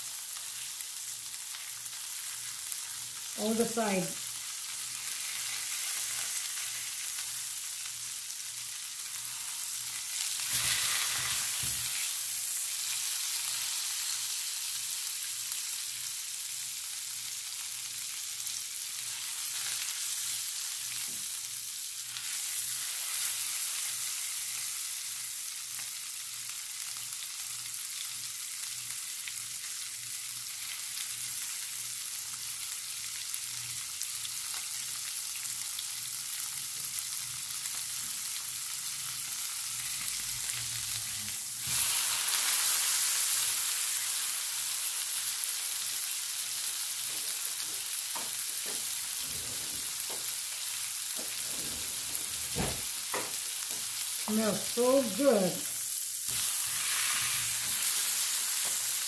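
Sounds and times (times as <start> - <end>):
meat sizzling in hot fat: 0.0 - 59.0.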